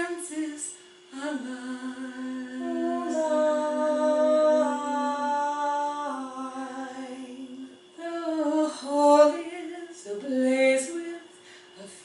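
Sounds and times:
woman singing unaccompanied: 0:00.0 - 0:12.0.

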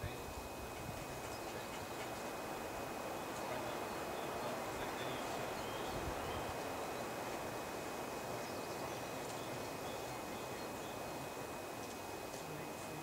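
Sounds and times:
steady outdoor hiss: 0:00.0 - 0:13.0
bird chirps: 0:03.6 - 0:07.2.

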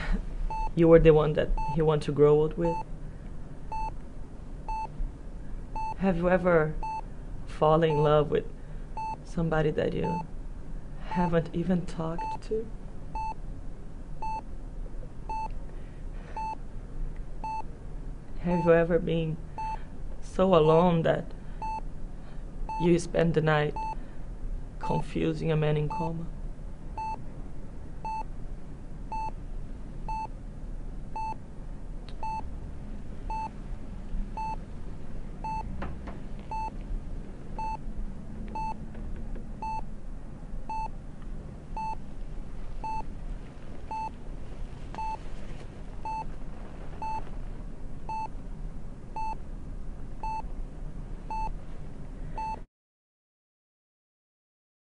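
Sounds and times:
heart monitor beeping: 0:00.0 - 0:00.8, 0:01.6 - 0:01.9, 0:03.7 - 0:04.0, 0:04.7 - 0:05.0, 0:05.7 - 0:06.0, 0:06.8 - 0:07.1, 0:09.0 - 0:09.2, 0:13.1 - 0:13.4, 0:14.2 - 0:14.5, 0:15.3 - 0:15.6, 0:16.3 - 0:16.6, 0:17.4 - 0:17.7, 0:19.6 - 0:19.8, 0:21.6 - 0:21.9, 0:23.7 - 0:24.0, 0:27.0 - 0:27.2, 0:28.0 - 0:28.3, 0:29.1 - 0:29.4, 0:30.1 - 0:30.4, 0:31.2 - 0:31.4, 0:32.2 - 0:32.5, 0:33.3 - 0:33.6, 0:34.4 - 0:34.6, 0:35.4 - 0:35.8, 0:36.4 - 0:36.8, 0:37.6 - 0:37.8, 0:38.5 - 0:38.8, 0:39.6 - 0:39.9, 0:40.7 - 0:41.0, 0:41.8 - 0:42.1, 0:42.8 - 0:44.2, 0:44.9 - 0:47.4, 0:48.0 - 0:48.4, 0:49.2 - 0:49.4, 0:50.2 - 0:50.5, 0:51.3 - 0:51.6, 0:52.4 - 0:52.6
low steady hum: 0:00.0 - 0:52.6.

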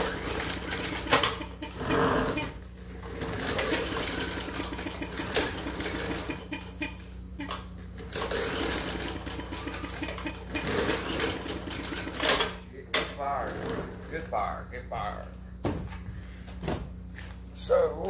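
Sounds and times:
small engine cranking: 0:00.0 - 0:12.6.

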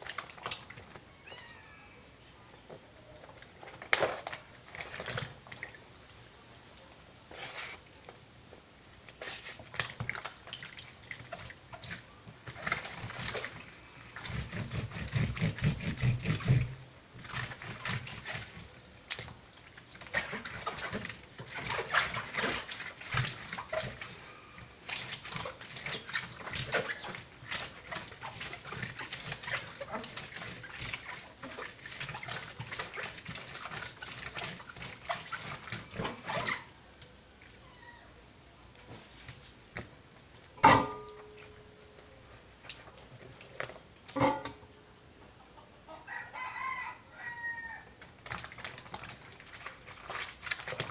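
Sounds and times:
wet paper scrubbed on washboard: 0:07.3 - 0:07.9, 0:09.2 - 0:09.9, 0:14.2 - 0:18.7.

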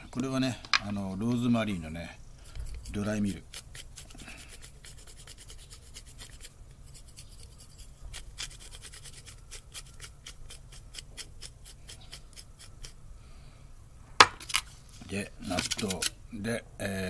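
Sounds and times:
spice mill grinding: 0:02.4 - 0:13.0.

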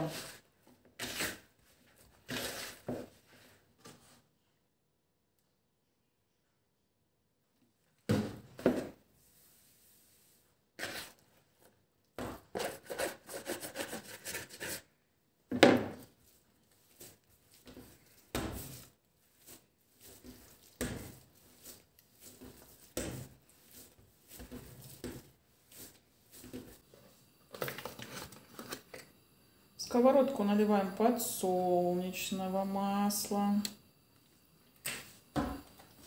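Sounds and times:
hands rubbing dough: 0:12.4 - 0:15.0, 0:16.0 - 0:27.4
dough thumping on countertop: 0:17.7 - 0:18.8, 0:22.4 - 0:23.4.

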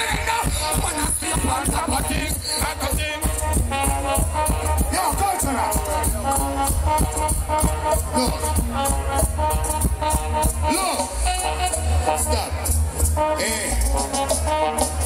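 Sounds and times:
heavy bass line: 0:00.0 - 0:15.0
live reggae band music: 0:00.0 - 0:15.0
steady drum beat: 0:00.0 - 0:15.0.

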